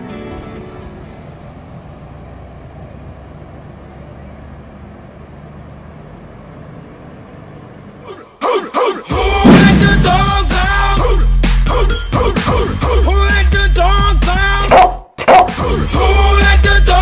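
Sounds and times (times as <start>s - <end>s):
outdoor background noise: 0.0s - 8.5s
bus engines idling: 0.0s - 9.4s.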